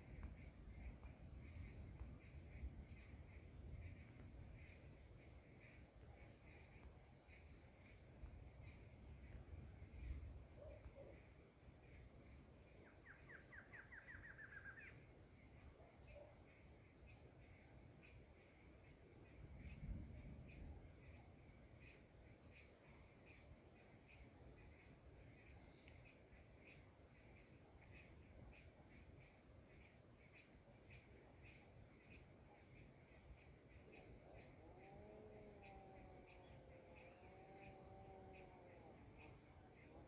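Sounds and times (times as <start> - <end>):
insects trilling: 0.0 - 40.0.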